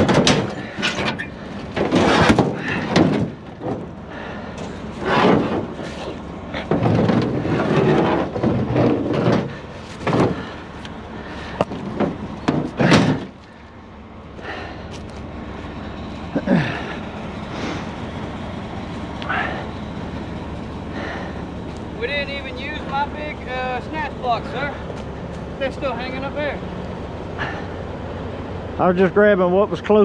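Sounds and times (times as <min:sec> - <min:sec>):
wire rope scraping over metal: 0:00.0 - 0:03.0, 0:04.6 - 0:10.9
steel wire rope clanking: 0:00.0 - 0:13.6.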